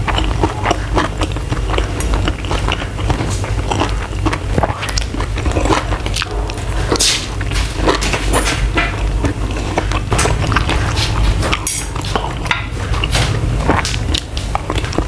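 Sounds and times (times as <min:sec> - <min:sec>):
mouth chewing: 0:00.0 - 0:15.0.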